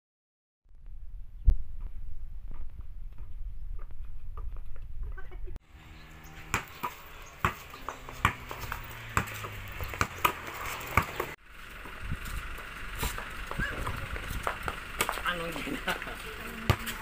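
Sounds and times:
basketball bouncing on concrete: 0:02.5 - 0:05.3, 0:06.4 - 0:12.4, 0:13.0 - 0:15.4, 0:16.5 - 0:17.0.

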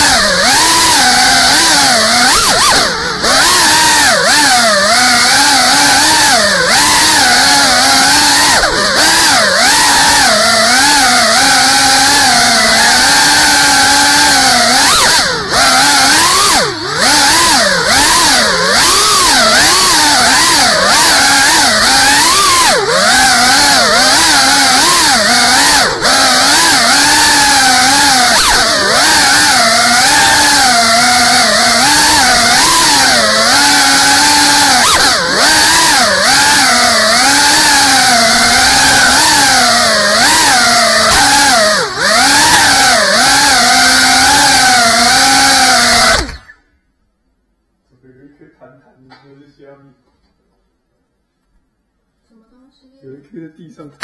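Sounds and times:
drone motors and propellers whining: 0:00.0 - 0:46.6.

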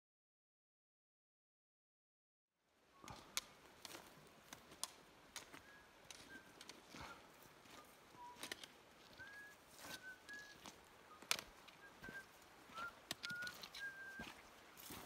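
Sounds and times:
pole tips and boots on stony trail: 0:03.0 - 0:15.0
faint whistled bird calls: 0:05.5 - 0:15.0.

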